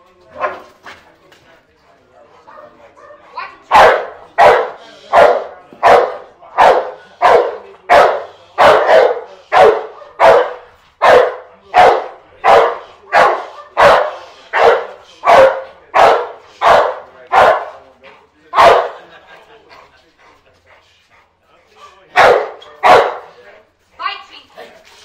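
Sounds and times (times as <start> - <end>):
dog barking: 2.5 - 17.8, 18.6 - 19.0, 22.1 - 23.3.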